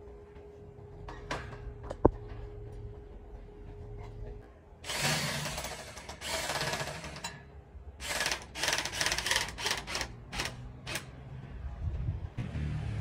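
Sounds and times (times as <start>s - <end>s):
electric drill drilling metal: 4.9s - 7.3s, 8.0s - 11.0s.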